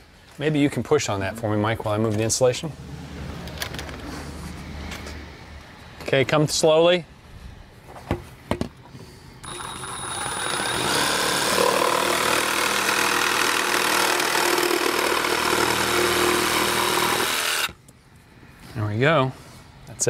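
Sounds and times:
reciprocating saw cutting pipe: 9.4 - 17.8.

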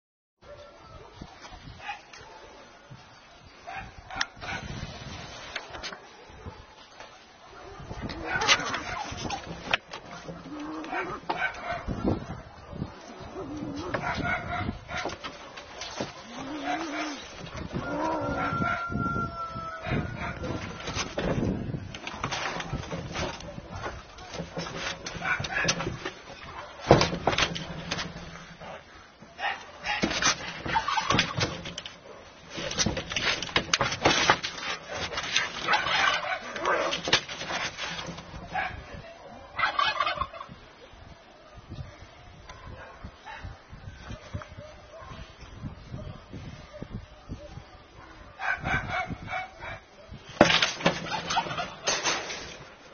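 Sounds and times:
cats scuffling: 4.6 - 18.4, 20.2 - 38.7
cats yowling: 16.2 - 21.3
scuffling knocks on metal roof: 20.5 - 28.6, 29.9 - 38.6, 50.3 - 52.8.

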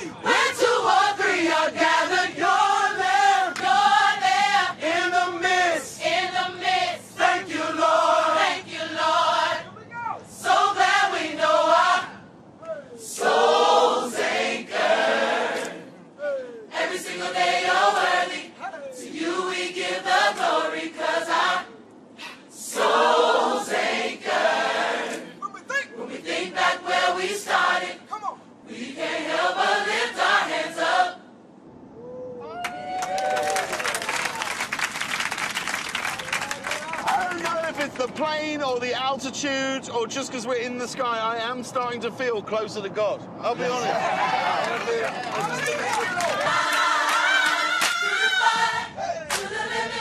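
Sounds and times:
gospel choir singing: 0.0 - 12.3, 13.0 - 31.4, 43.8 - 50.0.

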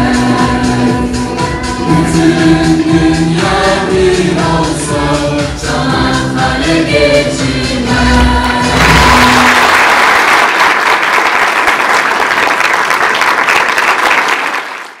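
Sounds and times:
audience applause: 8.6 - 15.0.

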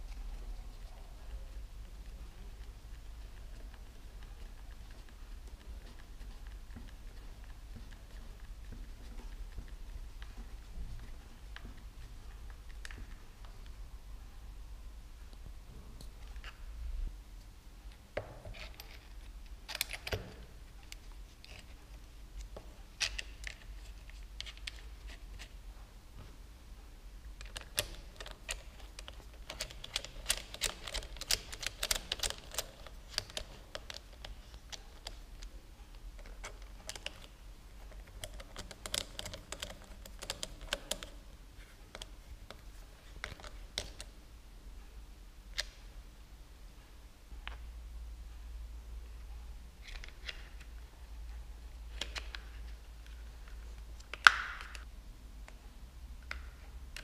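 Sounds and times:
plastic and metal parts clicking: 18.2 - 25.2, 27.4 - 35.5, 36.2 - 44.2, 51.9 - 54.9.

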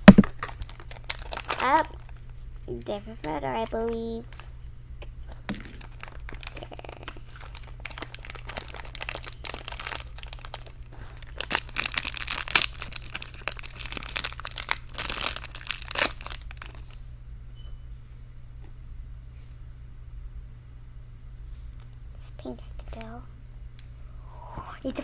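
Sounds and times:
plastic wrapper crinkling and tearing: 0.1 - 2.3, 4.3 - 4.5, 5.5 - 17.0.

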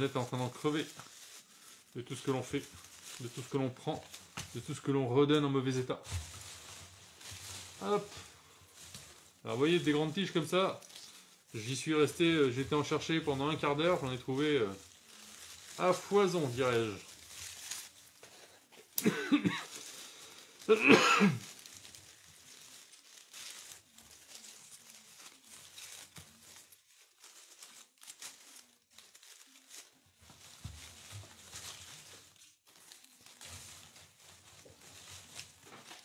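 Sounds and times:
ivy leaves rustling: 0.0 - 36.0
man clearing throat: 19.0 - 19.7, 20.7 - 21.5.

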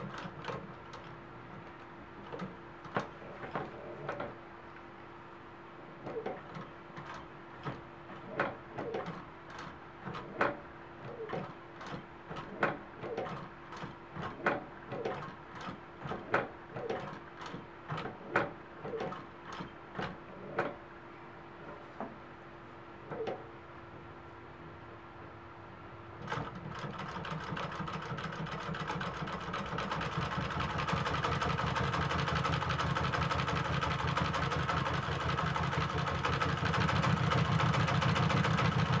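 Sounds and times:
sewing machine motor hum: 6.0 - 20.8, 26.2 - 39.0.

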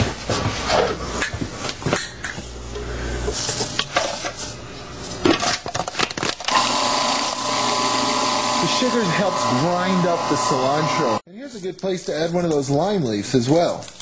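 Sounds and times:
food processor whirring: 5.9 - 11.2.

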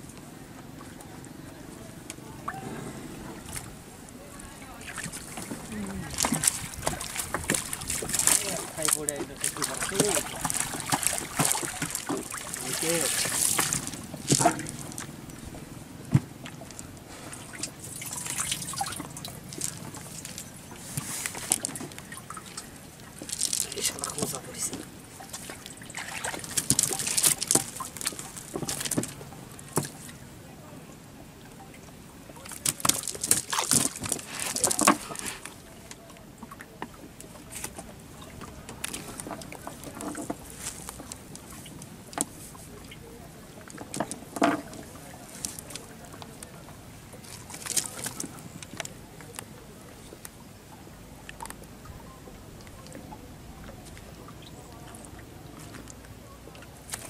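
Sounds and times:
small clicks and splashes: 4.7 - 30.2, 31.4 - 57.0
water dripping from wet net: 4.8 - 15.4, 17.5 - 20.6, 21.3 - 30.1.

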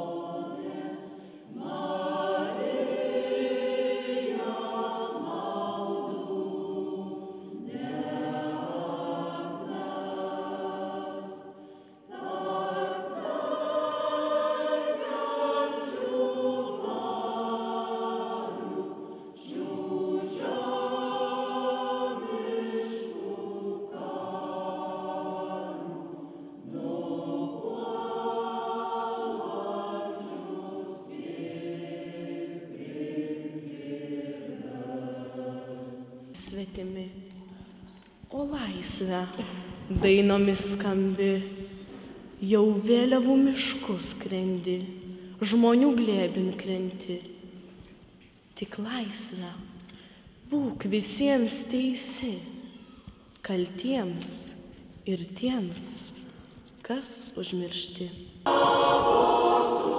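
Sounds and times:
mixed choir singing: 0.0 - 36.5, 58.4 - 59.9.

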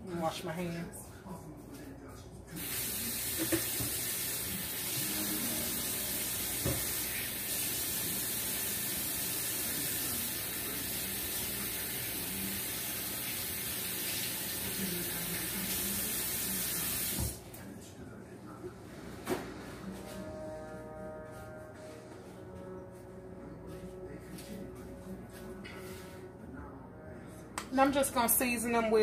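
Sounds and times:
faucet running: 2.6 - 17.4.

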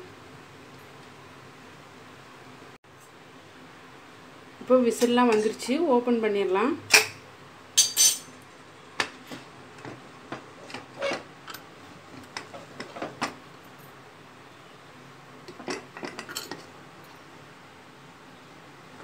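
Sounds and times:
metal lid clinks and knocks: 7.8 - 8.3.

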